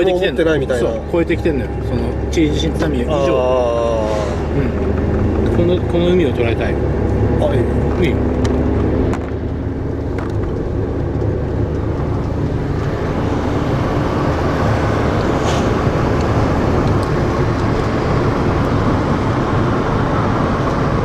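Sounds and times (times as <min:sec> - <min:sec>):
engine and tyre rumble: 0:00.0 - 0:21.0
road hiss: 0:03.4 - 0:04.8, 0:14.3 - 0:16.6.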